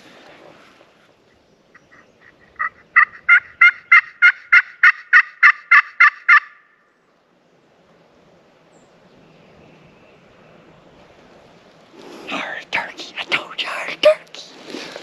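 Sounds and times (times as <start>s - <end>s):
turkey call yelps: 1.8s - 6.8s.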